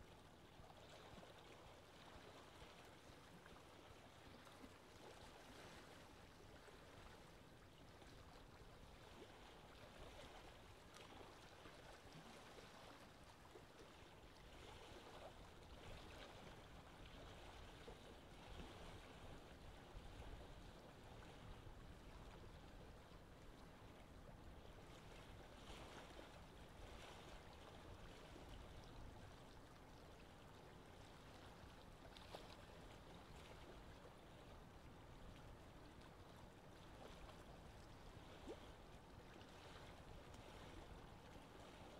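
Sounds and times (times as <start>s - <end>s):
choppy sea water: 0.0s - 41.9s.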